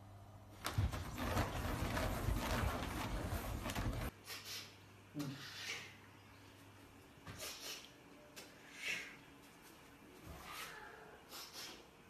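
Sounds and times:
bedding scuffling and rustling: 0.6s - 4.1s.

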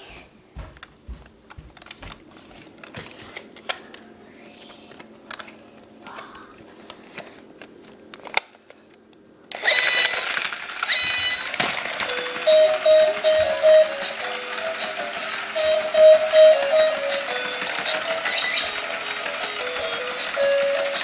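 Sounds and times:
electronic chirping toy sounds: 9.6s - 21.0s.

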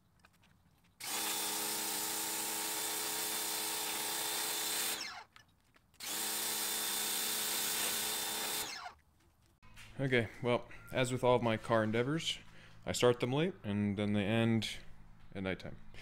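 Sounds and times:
motor winding down whine: 1.0s - 5.2s, 6.0s - 8.9s
pressure washer motor humming: 1.0s - 5.2s, 6.0s - 8.9s.

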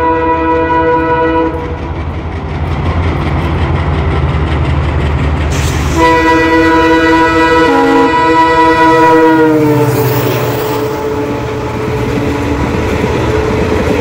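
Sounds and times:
locomotive air horn chord: 0.0s - 1.8s, 5.8s - 12.1s
locomotive rumble: 0.0s - 14.0s.

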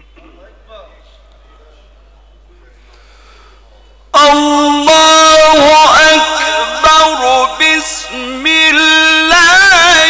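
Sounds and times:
man chanting recitation: 4.1s - 10.0s.

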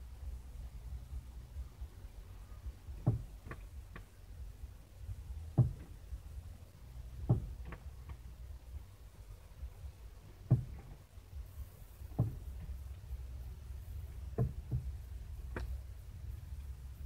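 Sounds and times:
bird pecking car mirror: 3.0s - 4.0s, 5.5s - 6.0s, 7.2s - 8.2s, 10.4s - 11.0s, 12.1s - 12.8s, 14.2s - 15.8s.

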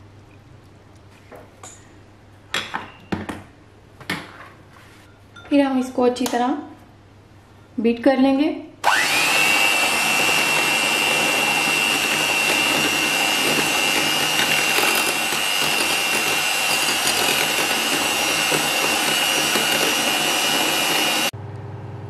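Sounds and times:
electric hand mixer whining: 8.8s - 21.3s.

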